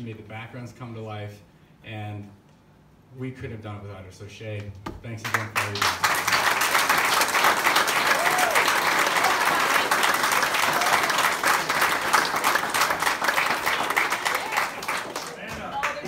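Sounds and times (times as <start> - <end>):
audience applauding: 5.3 - 16.0.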